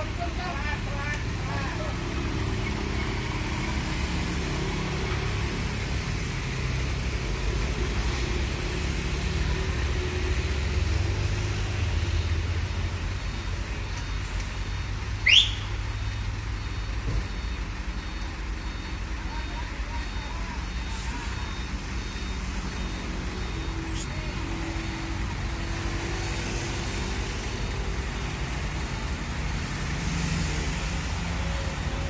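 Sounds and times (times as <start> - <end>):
diesel truck engines idling: 0.0 - 32.0
sharply rising whistle: 15.2 - 15.8.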